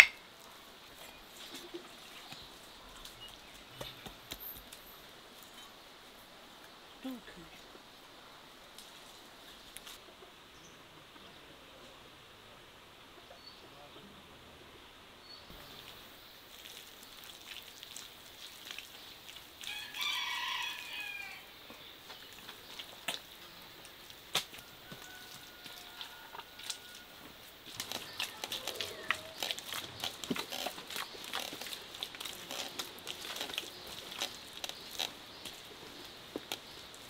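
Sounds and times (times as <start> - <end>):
rooster crowing: 19.7 - 21.5, 24.6 - 27.3, 28.0 - 29.4
hands slapping mud plaster: 24.3 - 25.1.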